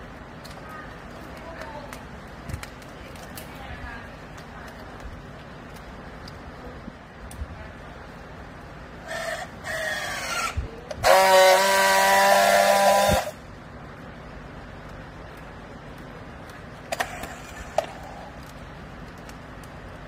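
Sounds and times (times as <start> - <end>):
loud steady buzz: 7.8 - 19.4
strapping tool motor whining: 9.1 - 13.4.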